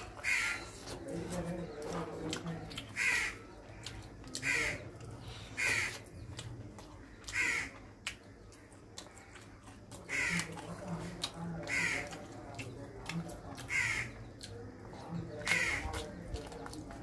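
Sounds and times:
crow cawing: 0.2 - 0.7, 3.0 - 4.8, 5.5 - 6.1, 7.2 - 7.8, 10.0 - 10.6, 11.6 - 12.2, 13.7 - 14.2, 15.4 - 15.8.

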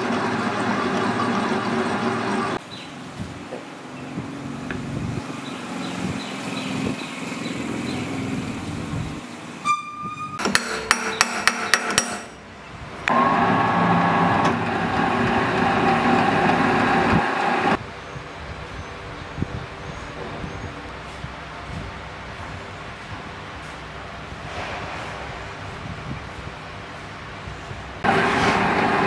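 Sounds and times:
metal lathe running: 0.0 - 2.6, 13.1 - 17.8
machine hum: 13.0 - 17.8.

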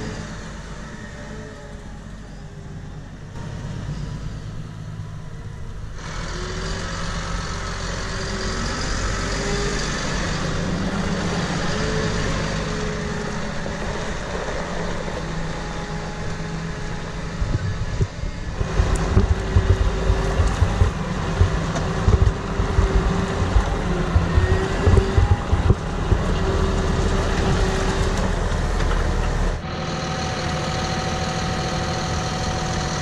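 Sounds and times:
tractor engine running: 3.0 - 33.0
loud low thumps: 18.6 - 26.4.

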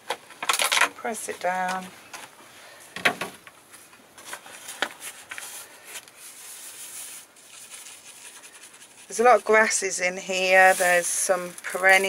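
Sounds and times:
hand rubbing compost: 3.8 - 12.0.

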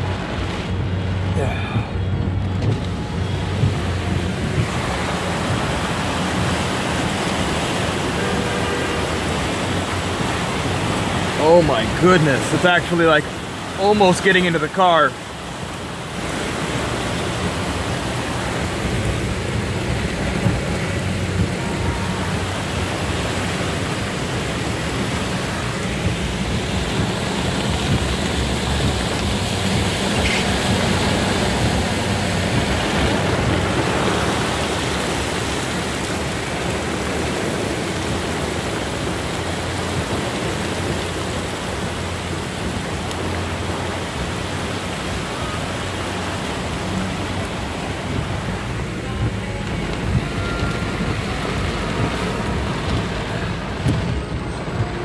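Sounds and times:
heavy rain on a car: 0.0 - 55.0
low rumble: 15.4 - 44.0.

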